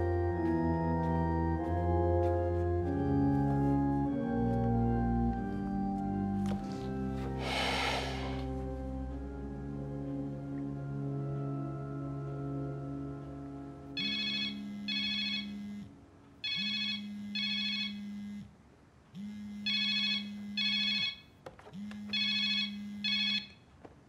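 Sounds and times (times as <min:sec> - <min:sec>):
background music chords: 0:00.0 - 0:14.0
telephone ringing: 0:14.0 - 0:18.2, 0:19.6 - 0:23.6.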